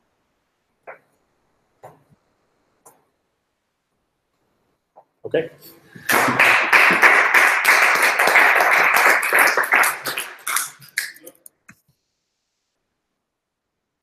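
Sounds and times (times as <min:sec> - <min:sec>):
small group applauding: 0:06.1 - 0:11.5.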